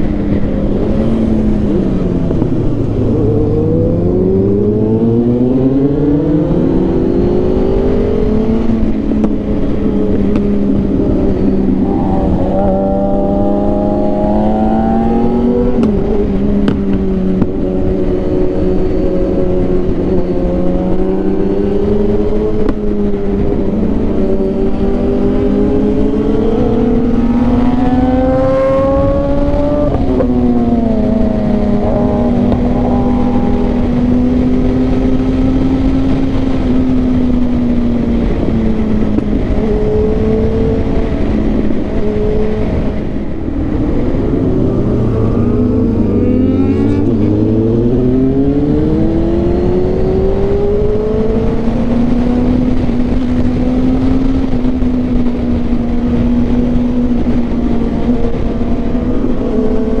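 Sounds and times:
motorcycle engine accelerating: 0.0 - 60.0
wind rush: 0.0 - 60.0
deeper engine note: 42.7 - 49.9.

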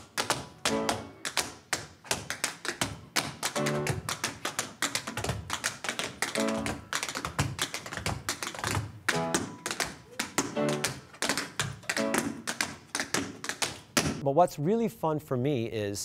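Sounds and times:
tap shoes on wooden stage: 0.0 - 14.2
backing music: 9.1 - 9.6.

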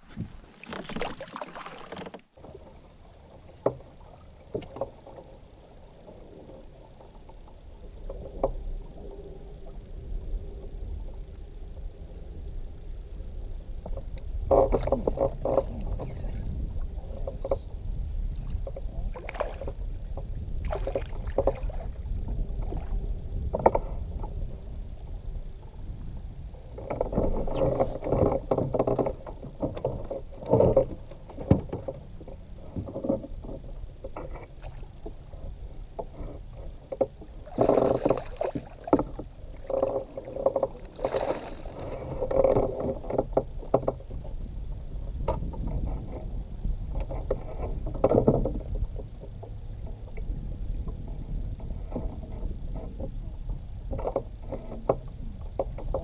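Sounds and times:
water lapping against a hull: 0.0 - 56.0
low rumble: 5.3 - 28.1
gear knocking on a boat: 13.9 - 17.8, 26.7 - 56.0.

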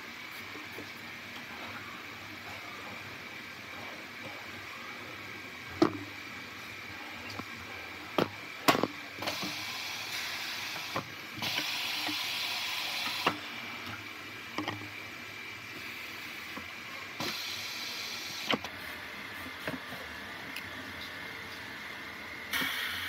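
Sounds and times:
air hissing: 9.2 - 13.6, 22.5 - 23.0.

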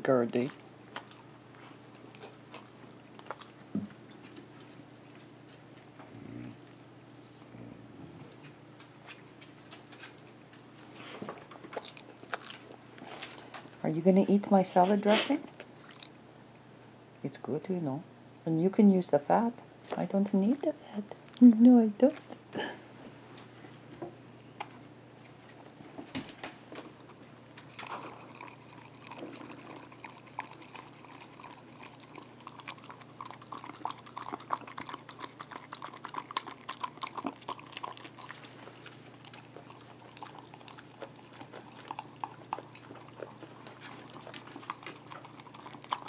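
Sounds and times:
dogs lapping wet: 27.6 - 46.0.

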